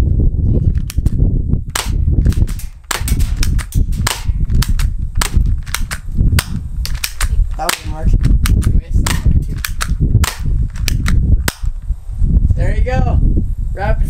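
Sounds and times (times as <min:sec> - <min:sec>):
bb gun shots: 0:00.9 - 0:11.8.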